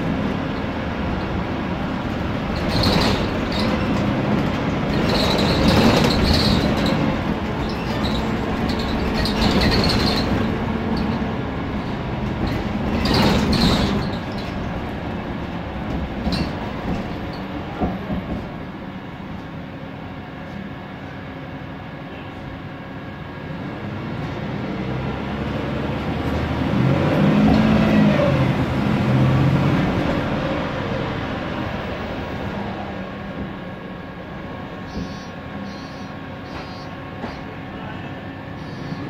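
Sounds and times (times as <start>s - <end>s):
bus engine pulling: 0.0s - 39.0s
bus running noise: 0.0s - 39.0s
rattles and clanks of fittings: 2.6s - 11.2s, 12.3s - 14.8s.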